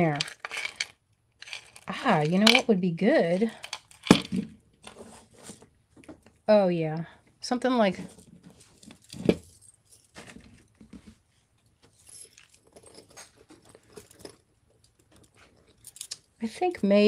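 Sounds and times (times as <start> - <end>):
metal chain clinking and jingling: 0.0 - 2.6, 8.7 - 10.2, 11.9 - 16.4.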